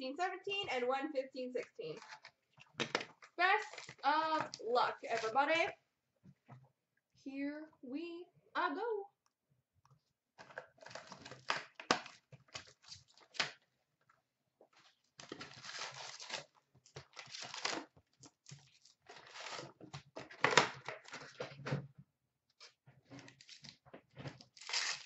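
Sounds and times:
plastic wrap crinkling: 1.9 - 5.4, 15.1 - 19.8, 24.4 - 25.0
cardboard tearing: 15.2 - 19.8, 24.4 - 25.0.

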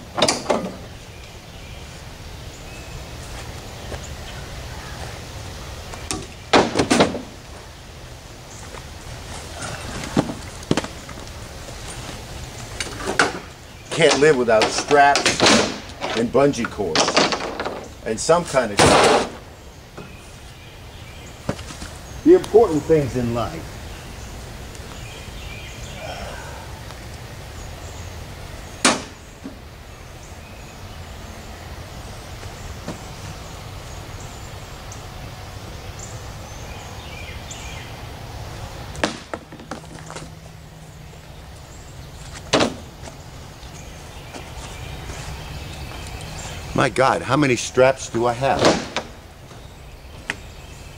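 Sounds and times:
hard objects clunking: 12.8 - 18.0.

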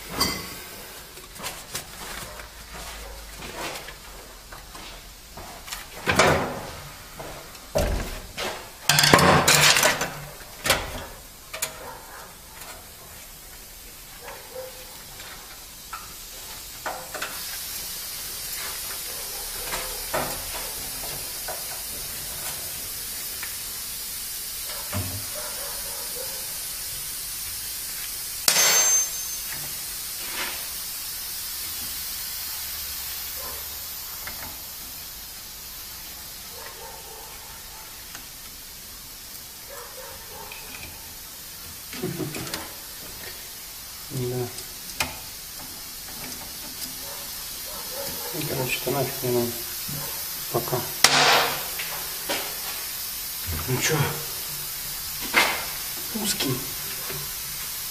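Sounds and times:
steady hiss: 0.0 - 57.9
metal clanks and knocks: 7.8 - 11.9
ringing metallic knock: 28.5 - 29.4.

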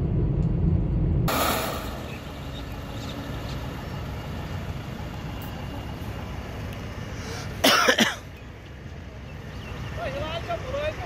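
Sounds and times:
idling trucks and cars: 0.0 - 11.0
person coughing: 7.6 - 8.3.

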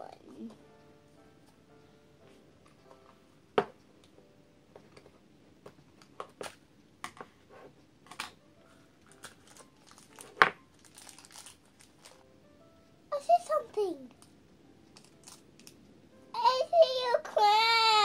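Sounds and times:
wrapper crinkle: 9.0 - 12.2, 15.0 - 15.8.

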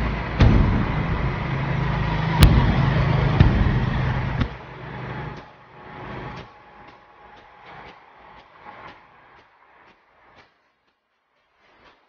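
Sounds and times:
engine rumbling: 0.0 - 10.3
sharp knocks: 0.3 - 4.7.

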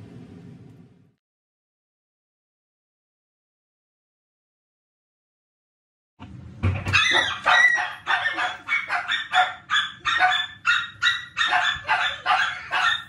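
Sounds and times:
dog barking: 6.9 - 13.0.

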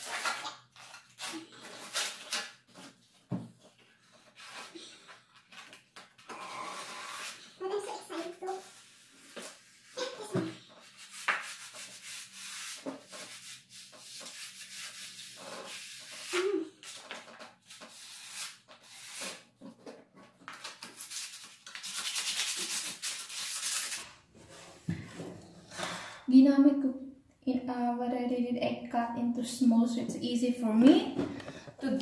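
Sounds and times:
sandpaper scratching on wood: 10.8 - 17.0, 21.0 - 24.0.

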